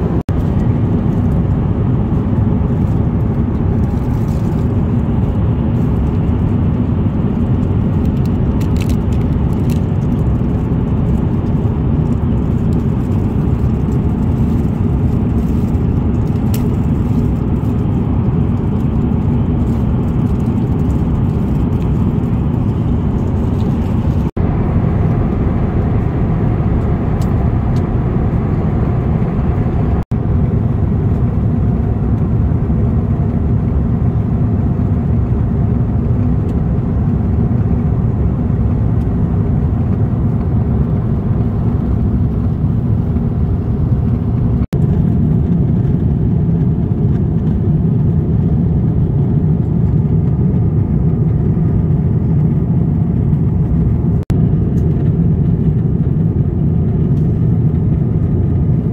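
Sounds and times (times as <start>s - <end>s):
airliner cabin engine rumble: 0.0s - 58.9s.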